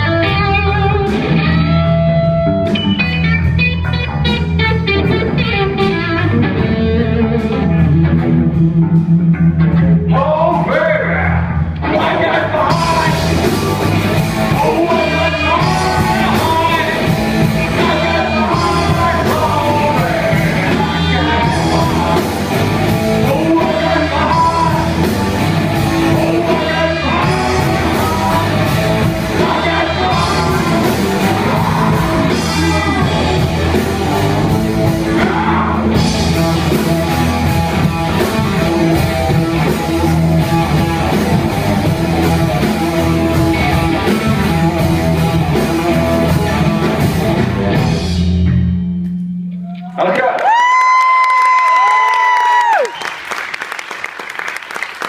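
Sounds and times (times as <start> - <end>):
electric guitars: 0.0 - 49.6
drum kit: 0.0 - 50.0
bass guitar: 0.0 - 52.9
sung vocals: 10.1 - 36.8.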